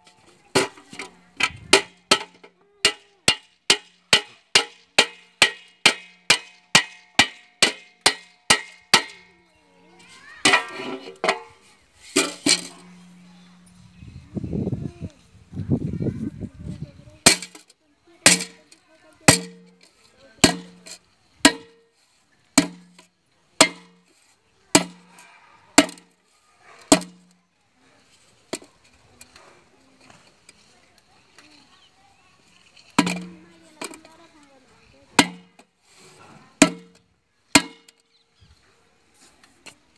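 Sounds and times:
metal tool striking metal pot: 0.1 - 9.3, 10.4 - 11.6, 12.2 - 13.8, 17.2 - 17.6, 18.2 - 18.7, 19.3 - 21.8, 22.6 - 23.0, 23.6 - 24.0, 24.8 - 25.1, 25.8 - 26.1, 26.9 - 27.3, 33.0 - 34.0, 35.1 - 35.6, 36.6 - 37.0, 37.6 - 38.0
metal scraping and clattering: 10.0 - 13.8.

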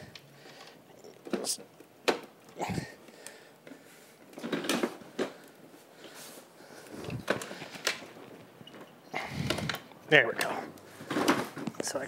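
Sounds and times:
scooter frame clunking and scraping: 4.3 - 5.5.

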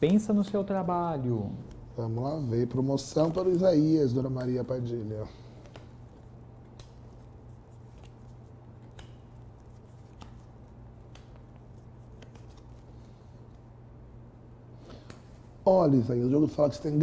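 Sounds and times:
steady low hum: 0.0 - 17.0
cards snapping and tapping: 5.6 - 13.1.

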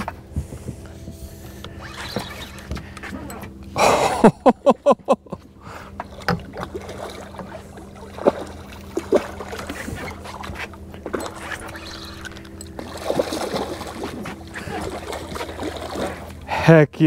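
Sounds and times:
boat motor humming: 0.0 - 17.0
fishing reel cranking: 1.7 - 3.4, 11.2 - 12.8.

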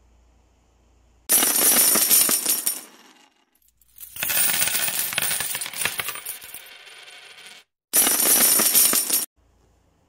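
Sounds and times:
metallic jingling and clinking: 3.6 - 6.8, 8.0 - 9.3.

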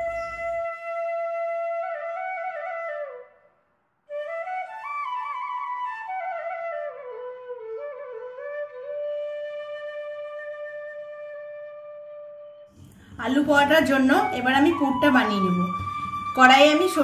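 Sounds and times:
flute melody: 0.0 - 3.5, 4.1 - 12.8, 13.5 - 17.0.

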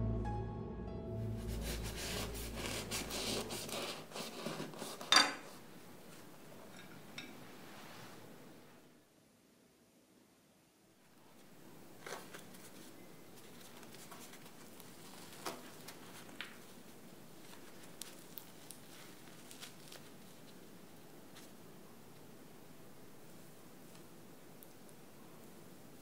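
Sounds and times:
crust crackling: 1.3 - 7.5, 11.1 - 26.0
bread tearing and rustling: 1.5 - 6.3, 11.2 - 22.2.

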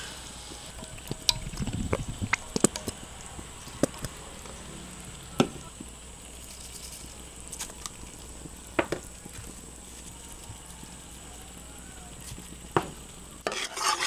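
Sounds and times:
oil sizzling in a wok: 0.0 - 14.0
oil pops and crackles: 0.8 - 9.7.

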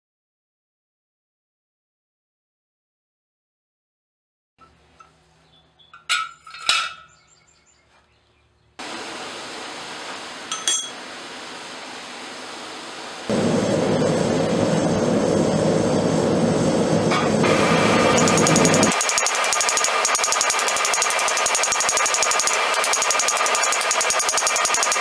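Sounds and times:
gas forge burner running: 8.8 - 25.0.

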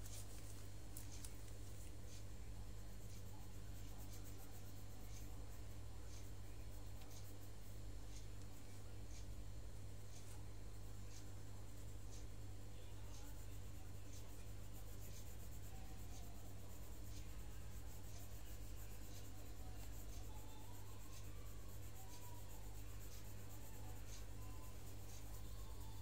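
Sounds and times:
pencil scratching on paper: 0.0 - 9.4, 10.1 - 26.0
steady low hum: 0.0 - 26.0.

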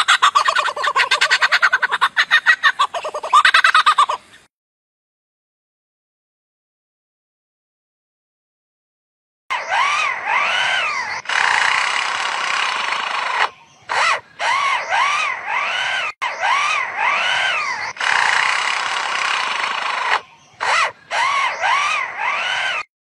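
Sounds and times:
bird mimicking electric drill: 9.5 - 22.9.

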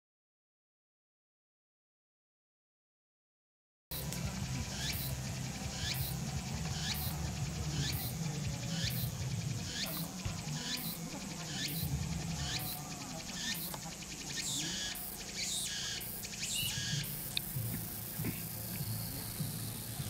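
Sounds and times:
steady low rumble: 3.9 - 14.3, 16.6 - 20.0
cicadas calling in pulses: 3.9 - 20.0.

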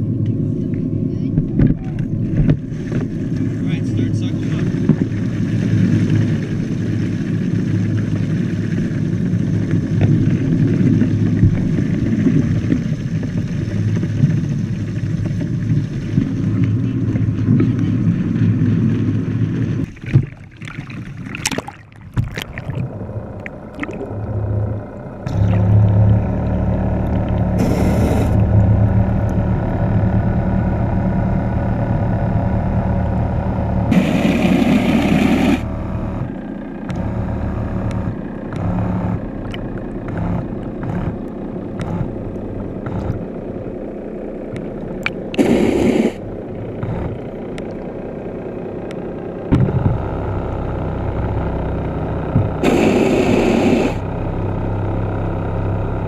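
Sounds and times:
low rumble: 0.0 - 56.0
muffled underwater motor hum: 0.0 - 56.0
loud splashing: 19.9 - 24.4.

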